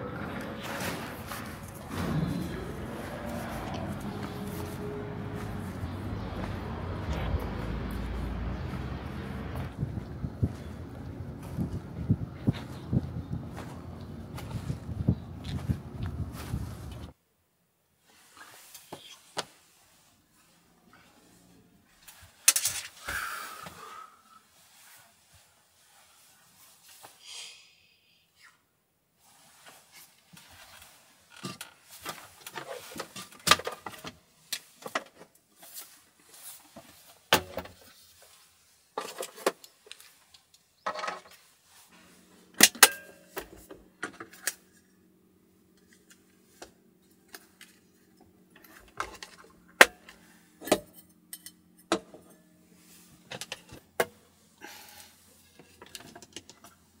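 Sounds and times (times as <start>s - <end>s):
low steady hum: 0.0s - 17.1s.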